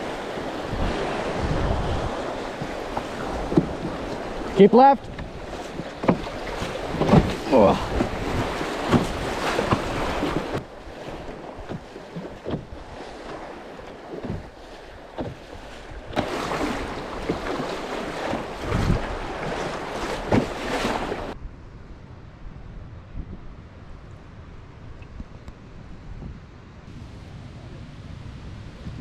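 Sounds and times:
flat water flowing: 0.0s - 21.4s
rapids rushing and churning: 0.0s - 21.4s.

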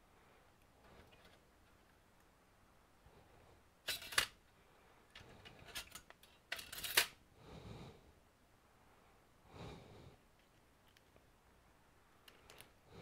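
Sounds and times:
sharp clicks of small parts: 3.9s - 4.4s, 5.1s - 7.2s.

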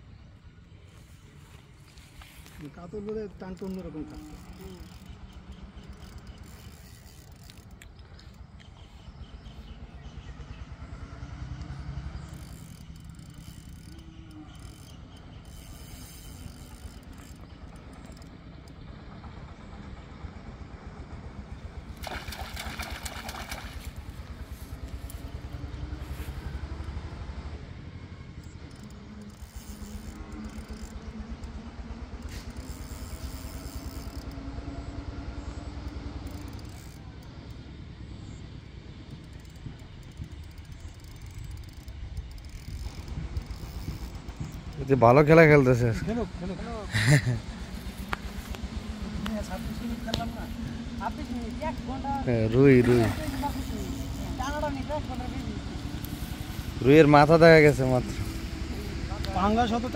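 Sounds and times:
low engine hum: 0.0s - 59.9s
fast ticking: 39.0s - 46.8s.

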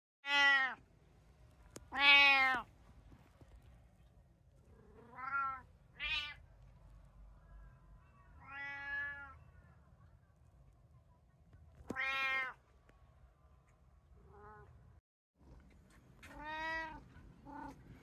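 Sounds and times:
cats meowing: 4.8s - 6.4s, 8.4s - 9.4s, 11.9s - 12.6s, 16.2s - 17.8s.

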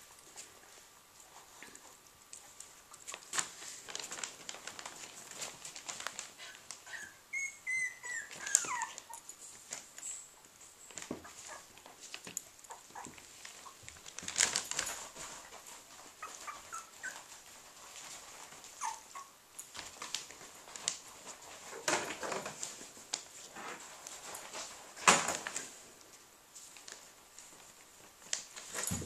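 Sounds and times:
paws scratching on pad and newspaper: 0.0s - 29.0s
puppies whimpering and squeaking: 6.4s - 9.4s, 10.9s - 11.8s, 12.6s - 19.4s.

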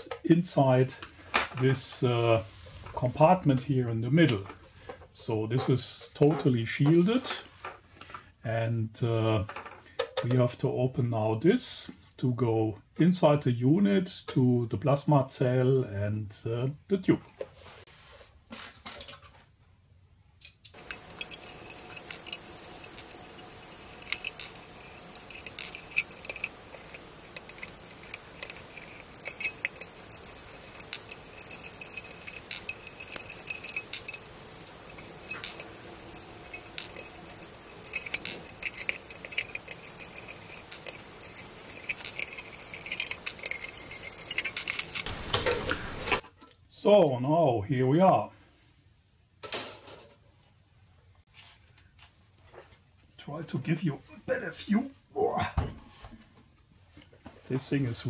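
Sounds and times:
small metallic clicks and rattles: 20.4s - 45.5s
faint steady hum: 20.8s - 46.2s.

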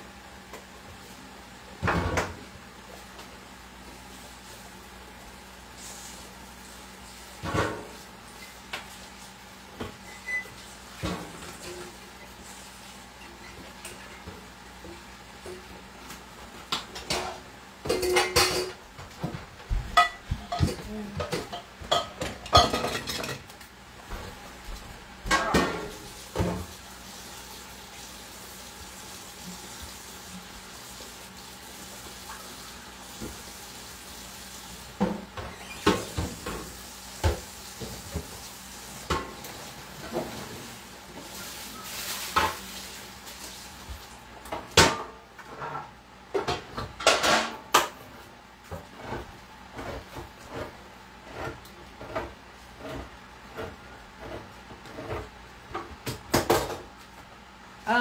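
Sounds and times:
dishes clattering in metal sink: 1.8s - 2.4s, 7.4s - 8.0s, 16.7s - 23.5s, 25.2s - 26.8s, 44.5s - 48.0s.

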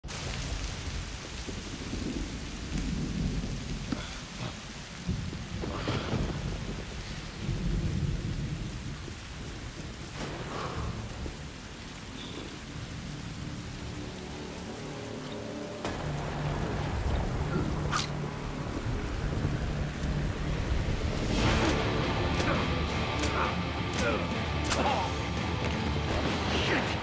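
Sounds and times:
heavy rain falling: 0.0s - 27.0s
thunder rumbling: 0.0s - 27.0s.

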